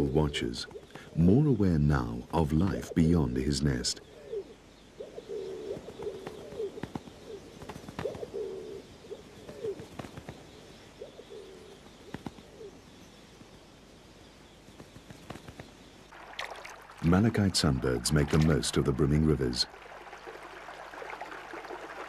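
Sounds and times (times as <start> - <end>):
pigeons cooing: 2.6 - 12.8.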